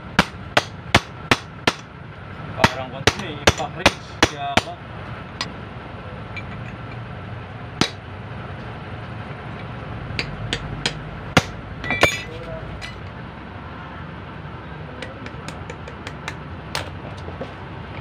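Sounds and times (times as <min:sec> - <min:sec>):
steady low hum: 0:00.0 - 0:18.0
hammer striking metal: 0:00.2 - 0:01.9, 0:02.6 - 0:04.8, 0:07.8 - 0:08.0, 0:10.2 - 0:13.0.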